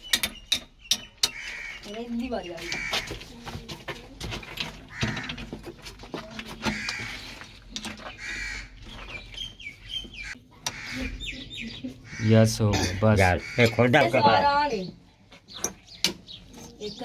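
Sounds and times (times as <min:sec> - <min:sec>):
hand pump squeaking: 0:00.0 - 0:03.3.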